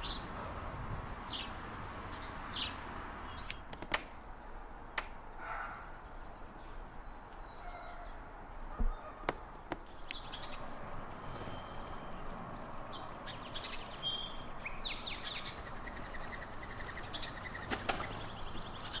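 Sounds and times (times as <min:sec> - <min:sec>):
small songbirds chirping: 0:00.0 - 0:03.7, 0:04.9 - 0:19.0
steady outdoor hiss: 0:00.0 - 0:19.0
sharp clicks: 0:03.4 - 0:04.3.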